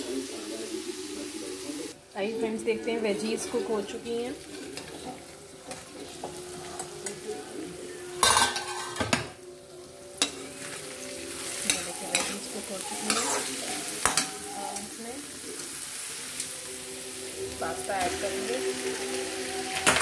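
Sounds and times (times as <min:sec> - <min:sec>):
vegetables sizzling in oil: 0:00.0 - 0:20.0
metal lid clattering: 0:08.2 - 0:09.4
metal spatula scraping pan: 0:08.2 - 0:09.4, 0:10.2 - 0:15.0.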